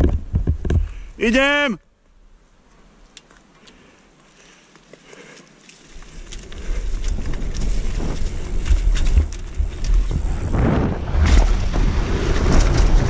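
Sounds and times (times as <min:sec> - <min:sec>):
bike tyres clicking and crunching: 0:03.2 - 0:13.0
wind buffeting microphone: 0:06.0 - 0:13.0.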